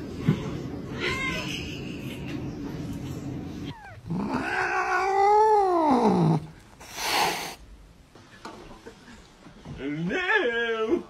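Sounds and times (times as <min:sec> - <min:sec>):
cat hissing: 0:03.6 - 0:07.7
cat yowling: 0:03.7 - 0:06.5.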